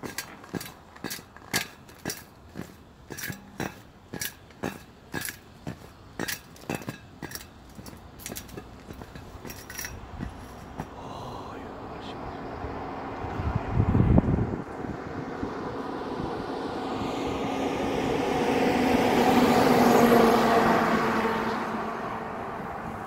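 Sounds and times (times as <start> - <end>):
footsteps on snow and frost: 0.0 - 11.0.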